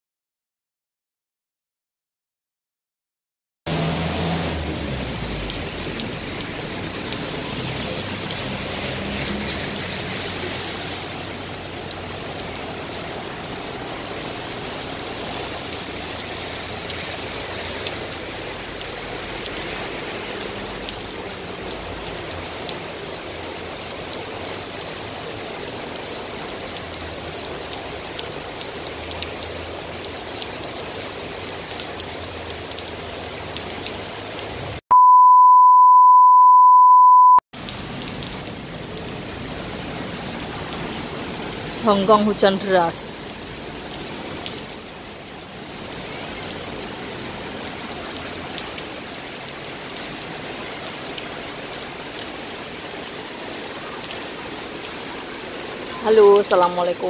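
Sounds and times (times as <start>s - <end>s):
low traffic rumble: 3.7s - 34.8s
rain on pavement: 3.7s - 34.8s, 37.5s - 57.0s.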